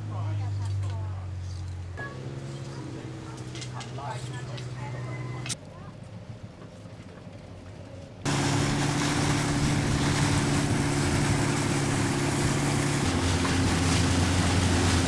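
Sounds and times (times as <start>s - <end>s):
boat engine running: 0.0s - 15.0s
wind: 0.0s - 15.0s
water rushing: 8.3s - 15.0s.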